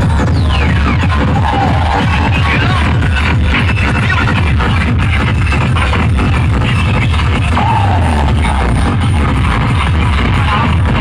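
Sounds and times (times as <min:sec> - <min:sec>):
electronic dance music with heavy bass: 0:00.0 - 0:11.0.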